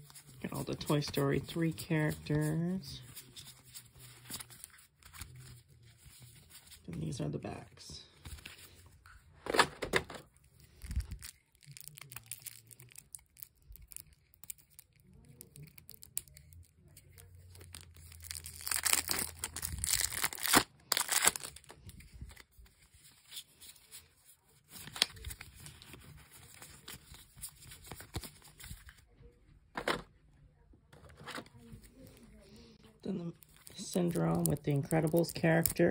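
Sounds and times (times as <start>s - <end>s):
plastic wrapping crinkling: 10.5s - 23.4s.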